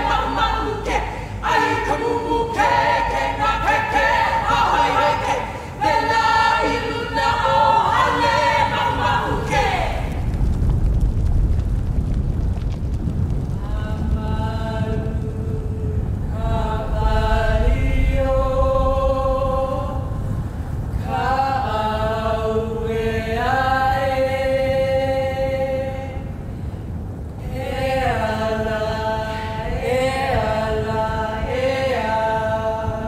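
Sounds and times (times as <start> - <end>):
women chanting: 0.0 - 10.3, 16.3 - 20.1, 21.0 - 26.2, 27.4 - 33.0
steady low rumble: 0.0 - 33.0.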